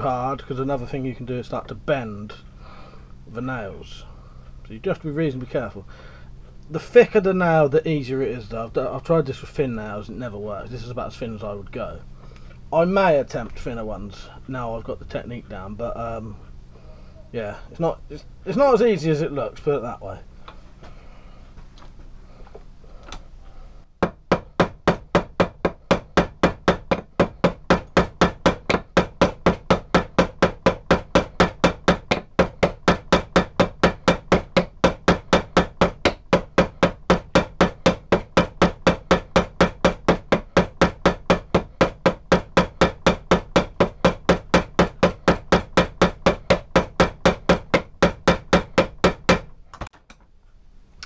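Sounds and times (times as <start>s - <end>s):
hammer tapping on nails: 24.0s - 50.2s.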